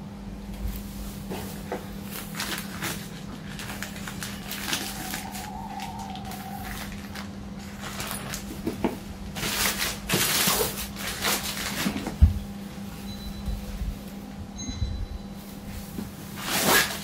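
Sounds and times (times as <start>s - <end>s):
plastic bag rustling: 0.6s - 13.0s.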